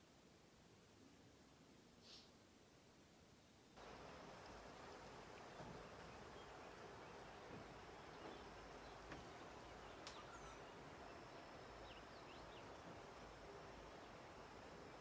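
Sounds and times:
faint bird chirps: 3.8s - 15.0s
high insect whine: 3.8s - 15.0s
faint click: 10.0s - 10.3s.

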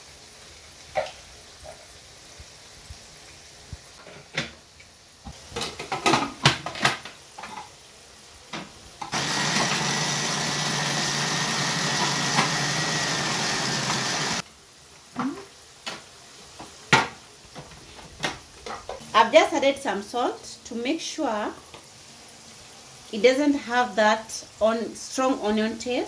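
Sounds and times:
food processor chopping vegetables: 9.1s - 14.4s.

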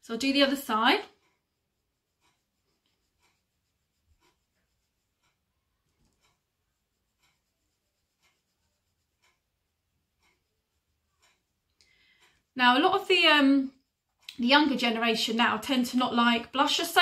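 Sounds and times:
wall clock ticking faintly: 0.0s - 17.0s.

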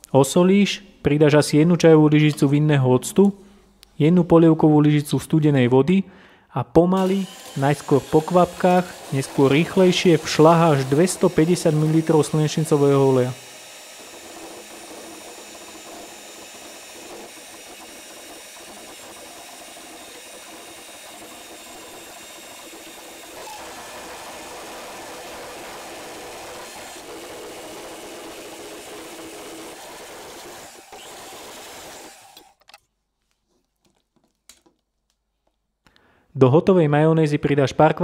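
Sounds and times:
electric hand mixer whisking: 7.0s - 32.6s.

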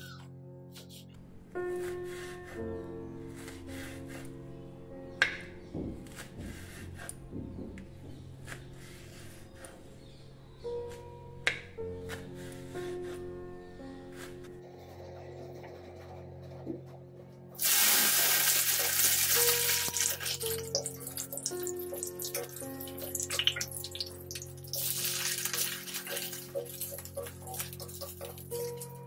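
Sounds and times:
spatula scraping a pan: 1.7s - 4.3s, 17.6s - 29.0s
food sizzling in hot oil: 17.6s - 28.0s.

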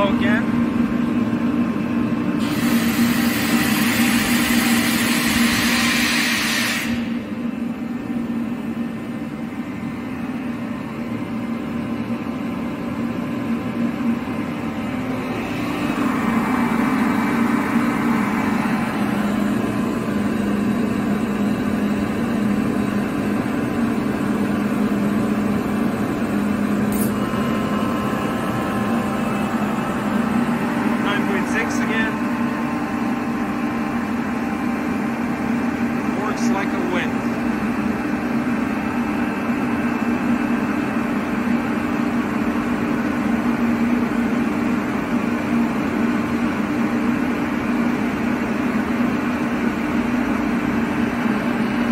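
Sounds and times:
air compressor humming: 0.0s - 51.9s
compressed air hissing: 2.4s - 7.2s.

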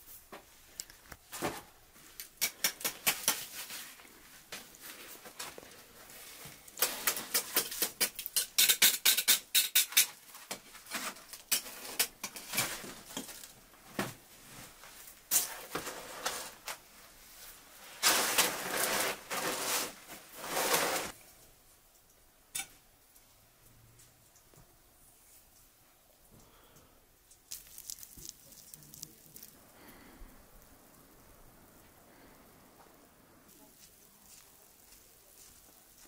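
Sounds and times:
flatbread crusts crackling: 26.4s - 36.0s.

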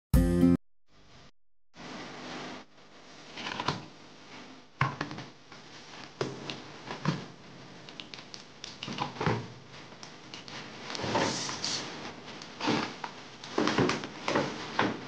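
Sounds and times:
cardboard scraping and rubbing: 10.9s - 15.0s.

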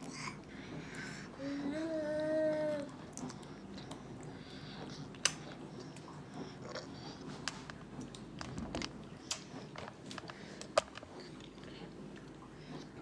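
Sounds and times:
babies chewing with wet smacks: 2.9s - 13.0s.

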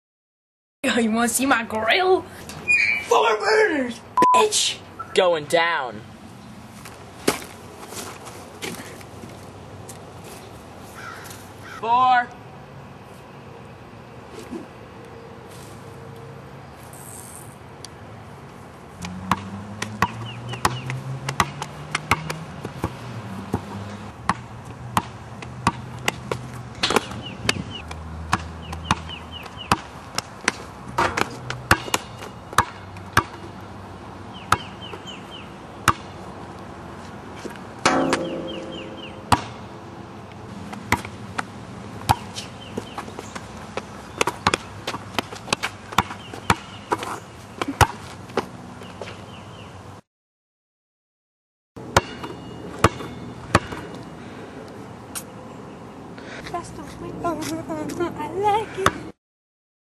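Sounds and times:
basketball bouncing on asphalt: 19.0s - 33.7s, 34.3s - 36.7s, 37.4s - 40.0s, 40.6s - 49.3s, 51.8s - 54.1s
low steady tones: 37.8s - 40.0s.

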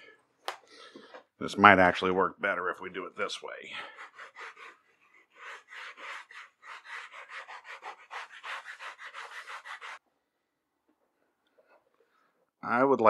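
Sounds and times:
sanding block rasping on leather: 3.8s - 10.0s.

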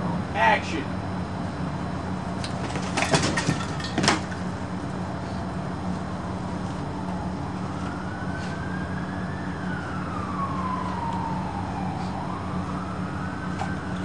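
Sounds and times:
steady low hum: 0.0s - 14.0s
distant siren wailing: 5.5s - 14.0s.

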